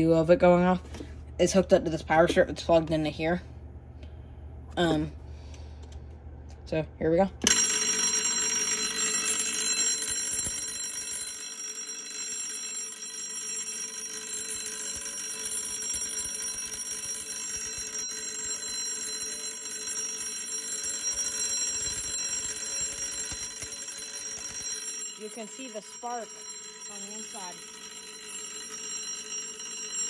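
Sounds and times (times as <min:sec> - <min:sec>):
electric doorbell ringing: 0:07.4 - 0:30.0.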